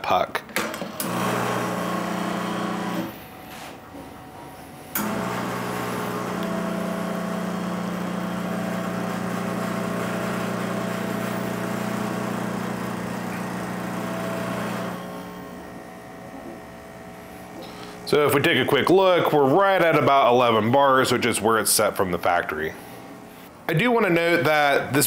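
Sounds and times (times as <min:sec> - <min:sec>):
espresso machine pump humming: 0:01.0 - 0:03.2, 0:05.0 - 0:18.1.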